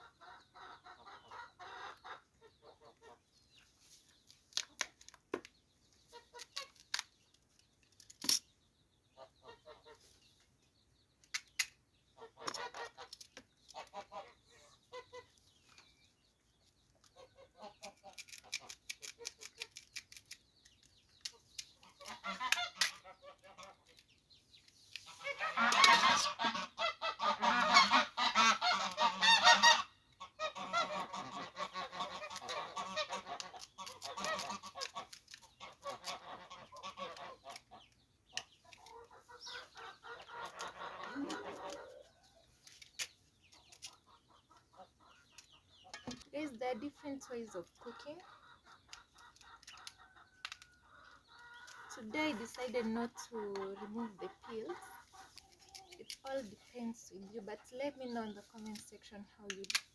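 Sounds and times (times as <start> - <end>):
domestic fowl calling: 21.8 - 23.7, 25.1 - 37.8, 38.8 - 42.2.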